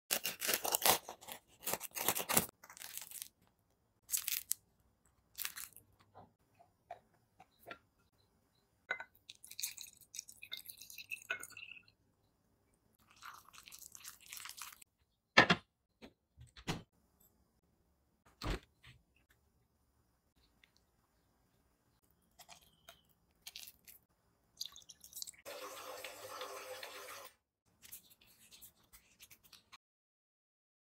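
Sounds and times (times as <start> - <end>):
knife crunching through bread crust: 0.1 - 3.4
water pouring into glass jar: 9.2 - 12.0, 13.0 - 14.8, 24.6 - 27.3.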